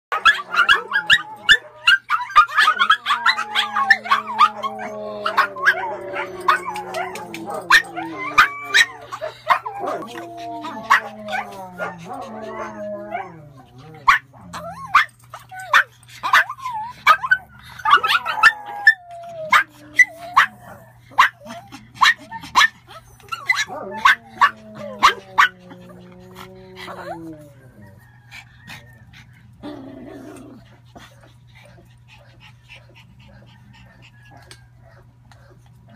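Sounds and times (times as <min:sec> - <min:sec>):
puppies yapping: 0:00.1 - 0:35.7
dogs yipping and barking: 0:00.1 - 0:35.9
long drawn-out howl: 0:00.2 - 0:14.9, 0:16.4 - 0:30.8
puppy whines: 0:00.4 - 0:15.8, 0:16.4 - 0:30.6.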